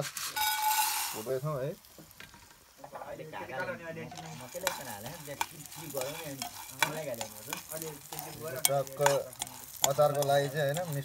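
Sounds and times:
metal spatula scraping pan: 0.0 - 1.3, 3.6 - 11.0
light sizzle: 0.0 - 11.0
beans rattling against metal: 0.2 - 1.5, 3.6 - 11.0.

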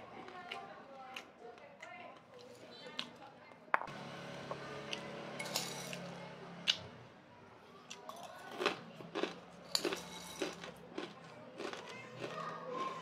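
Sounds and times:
chewing close to microphone: 7.9 - 13.0.

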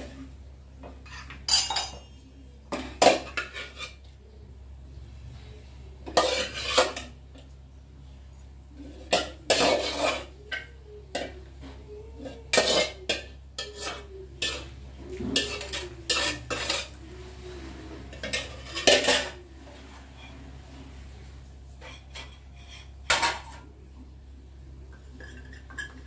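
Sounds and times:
metal spoon scraping in pot: 1.0 - 2.2, 3.1 - 4.2, 6.0 - 7.2, 8.8 - 11.4, 12.2 - 20.6, 21.7 - 23.6.

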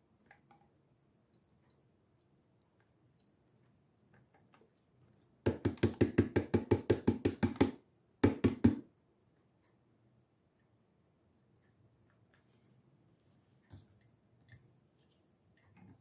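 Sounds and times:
knocking on plastic bottle: 5.5 - 8.8.

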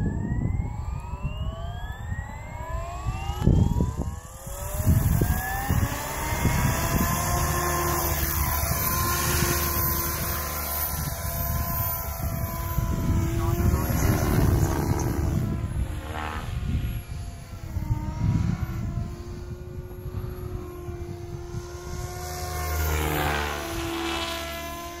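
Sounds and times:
helicopter motor and rotor whine: 0.0 - 25.0
wind rumble on microphone: 0.0 - 25.0.

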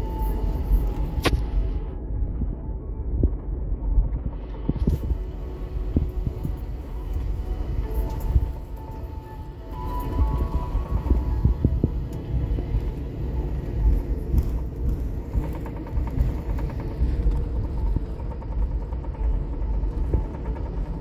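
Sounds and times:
airliner taxiing rumble: 4.6 - 21.0.

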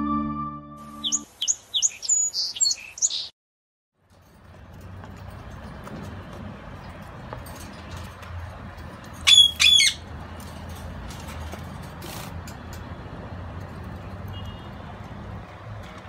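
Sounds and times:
parrot squawking: 9.3 - 10.0.

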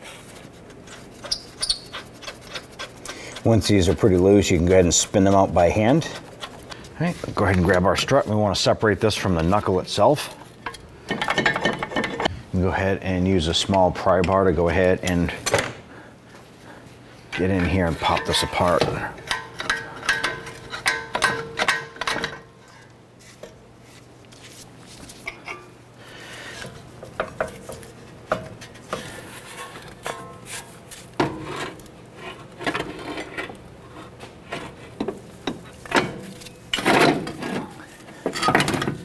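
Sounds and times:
pry bar scraping on metal: 0.9 - 6.8.

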